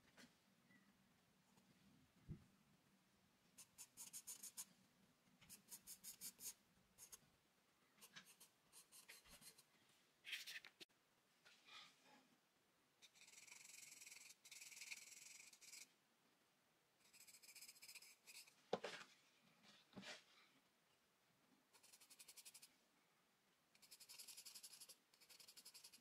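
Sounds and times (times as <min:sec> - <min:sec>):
pencil scratching on paper: 0:03.6 - 0:04.7, 0:05.5 - 0:07.2, 0:08.0 - 0:09.7, 0:13.0 - 0:15.9, 0:17.0 - 0:18.6, 0:21.8 - 0:22.7, 0:23.8 - 0:26.0.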